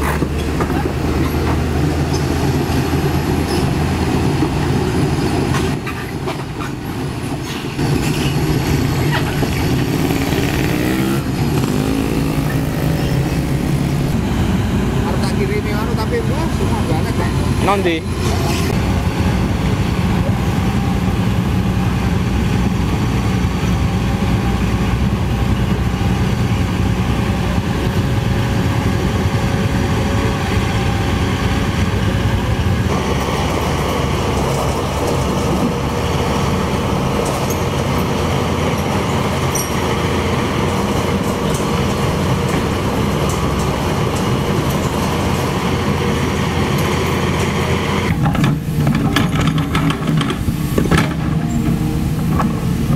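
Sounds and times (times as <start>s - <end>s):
excavator diesel engine running: 0.0s - 52.9s.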